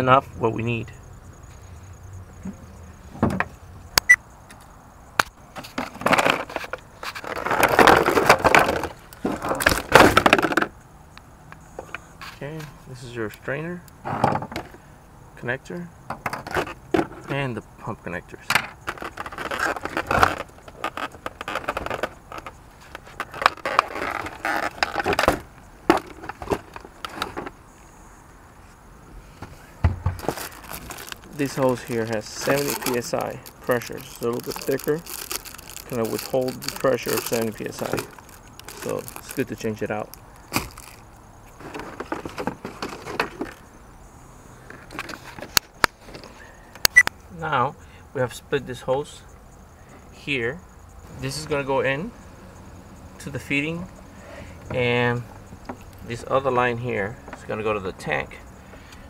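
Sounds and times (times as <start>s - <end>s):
plastic packaging handling noise: 18.8s - 27.6s, 29.8s - 43.6s
plastic packaging clicks: 30.2s - 39.4s
plastic packaging crinkling: 30.2s - 41.0s.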